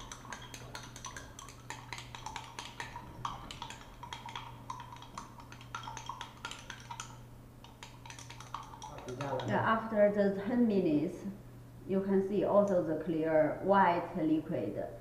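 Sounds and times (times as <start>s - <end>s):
stirring rod clinking against glass: 0.0s - 9.6s
steady low hum: 0.0s - 15.0s.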